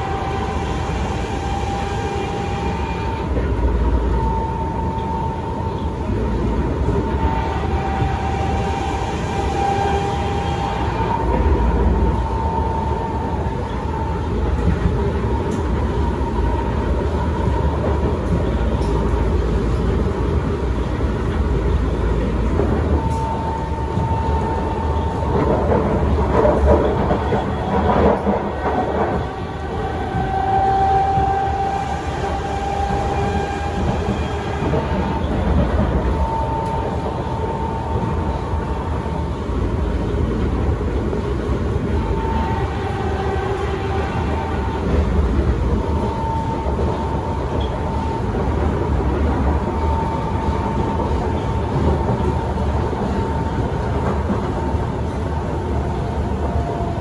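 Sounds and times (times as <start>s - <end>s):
train clattering: 0.0s - 57.0s
train inverter whine: 0.0s - 57.0s
wheel and rail rumble: 0.0s - 57.0s.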